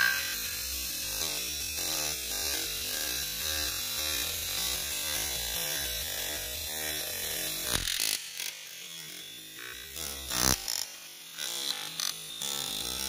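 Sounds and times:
sharp knock: 0:00.0 - 0:00.6
toy helicopter motors buzzing: 0:00.0 - 0:13.0.

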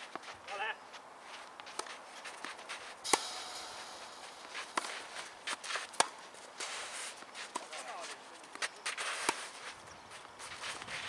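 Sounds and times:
footsteps scuffing on clay: 0:00.0 - 0:03.0, 0:04.8 - 0:11.0
brief hiss: 0:03.1 - 0:05.5
sharp knocks: 0:03.1 - 0:06.2.

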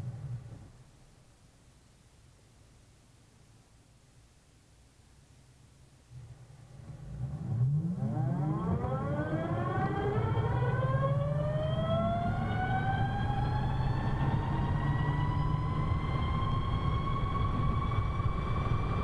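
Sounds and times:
steady low rumble: 0:02.6 - 0:19.0
electric scooter whining: 0:06.9 - 0:19.0.

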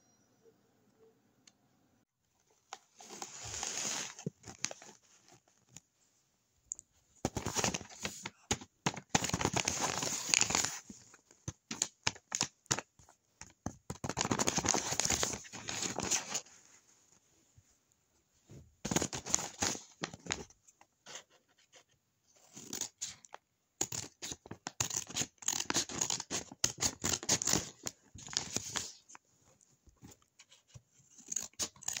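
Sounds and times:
paper crinkling and rustling: 0:02.7 - 0:05.8, 0:07.2 - 0:16.6, 0:18.9 - 0:20.6, 0:23.8 - 0:29.2.

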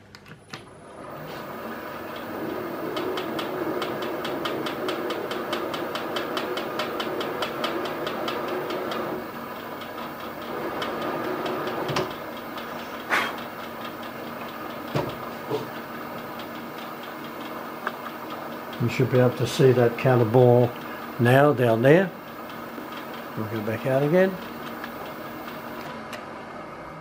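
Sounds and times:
milling machine cutting with ticking: 0:01.2 - 0:25.9
knocks: 0:14.9 - 0:15.7.

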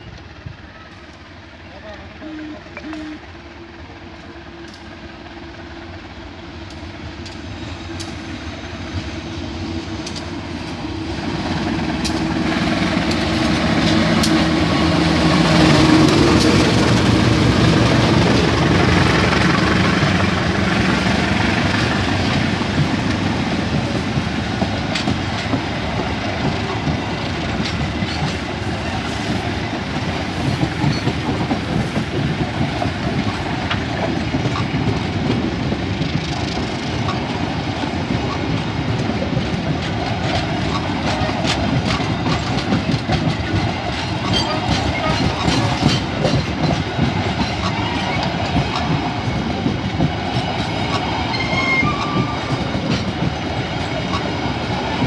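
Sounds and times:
diesel locomotive engine passing: 0:00.0 - 0:55.0
train wheels clickety-clack: 0:00.0 - 0:55.0.

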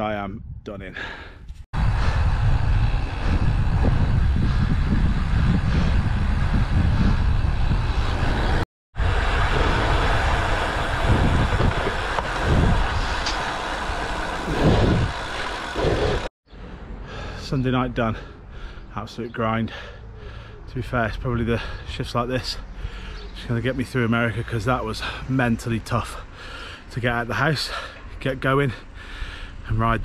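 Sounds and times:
wind buffeting microphone: 0:00.2 - 0:16.3.

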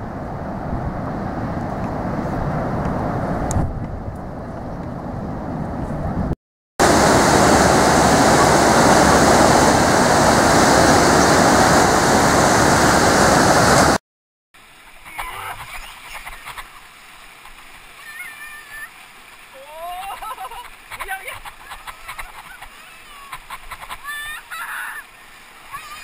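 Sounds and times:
breaking surf rushing: 0:00.0 - 0:03.9, 0:06.8 - 0:14.0
water splashing and lapping: 0:14.6 - 0:26.0.

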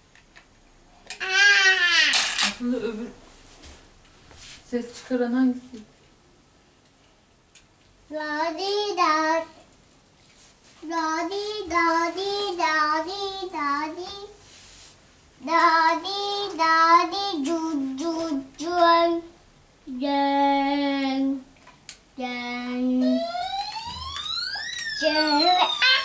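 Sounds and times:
child singing: 0:08.1 - 0:09.6, 0:10.8 - 0:14.4, 0:15.4 - 0:21.5, 0:22.2 - 0:23.2.

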